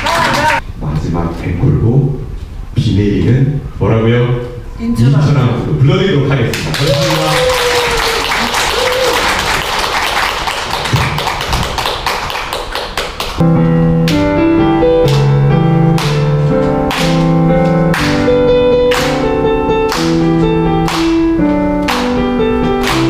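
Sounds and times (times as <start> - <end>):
audience applauding: 0.0 - 0.6, 6.5 - 13.4
piano chords: 13.1 - 23.0.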